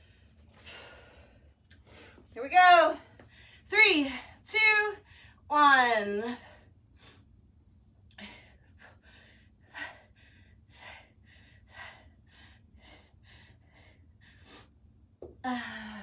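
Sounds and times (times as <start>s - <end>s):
woman breathing hard: 0.0s - 2.3s, 8.1s - 16.0s.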